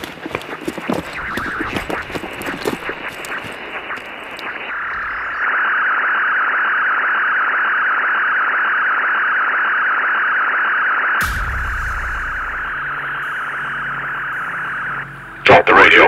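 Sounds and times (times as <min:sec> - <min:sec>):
radio crackling and clicking: 0:00.0 - 0:05.6, 0:12.4 - 0:16.0
radio static hiss: 0:00.0 - 0:05.7, 0:11.2 - 0:16.0.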